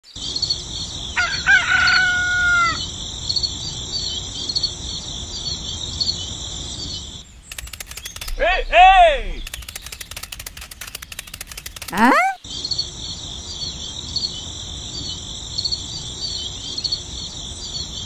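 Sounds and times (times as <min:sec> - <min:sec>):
rooster crowing: 0:01.2 - 0:02.9
quick clicks: 0:07.5 - 0:08.5, 0:09.4 - 0:12.4
high chirping: 0:07.5 - 0:12.4.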